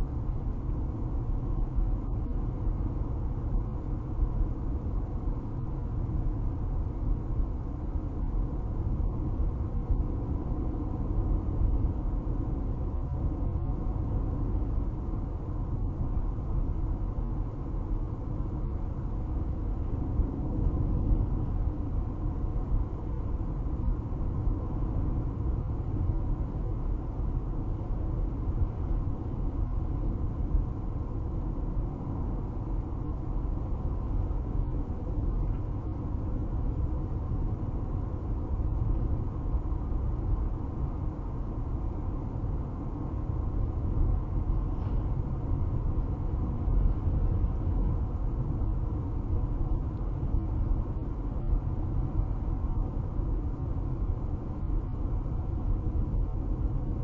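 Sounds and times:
road and engine rumble in car: 0:00.0 - 0:57.0.

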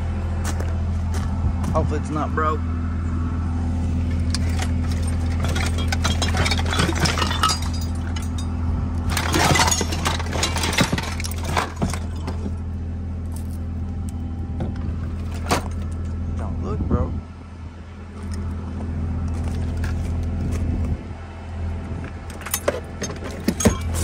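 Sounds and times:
low engine hum: 0:00.0 - 0:24.0
scrap metal clattering: 0:04.2 - 0:12.6, 0:22.4 - 0:24.0.

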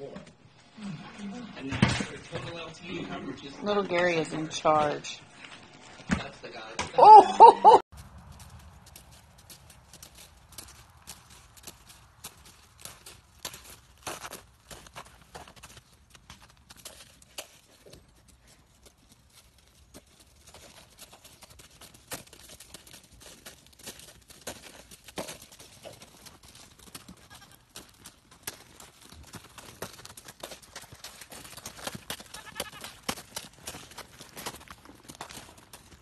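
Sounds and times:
footsteps crunching in snow: 0:07.9 - 0:36.0
goat bleating: 0:27.2 - 0:27.7, 0:32.3 - 0:33.1.

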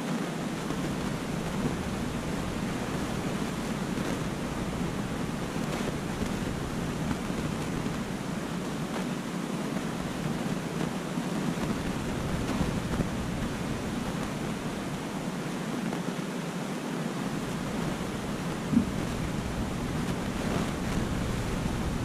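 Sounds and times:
water rushing and bubbling: 0:17.3 - 0:22.0.

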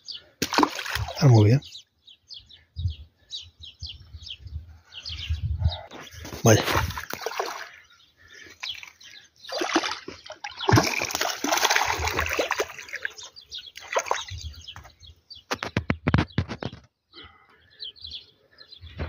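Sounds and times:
fish splashing at water surface: 0:00.4 - 0:01.2, 0:09.5 - 0:13.2.

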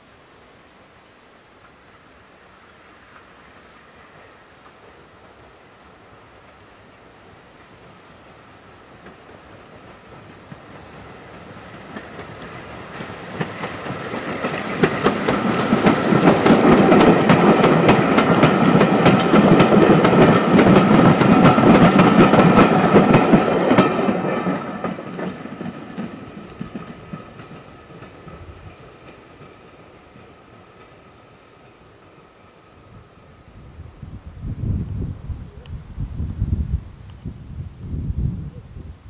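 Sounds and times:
steam train passing: 0:00.0 - 0:39.0
wheels clacking over rail joints: 0:08.8 - 0:32.3.

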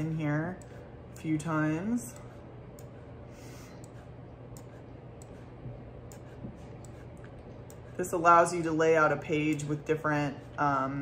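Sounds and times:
steady low hum: 0:00.0 - 0:11.0
computer mouse clicks: 0:03.8 - 0:05.5, 0:06.1 - 0:07.9.

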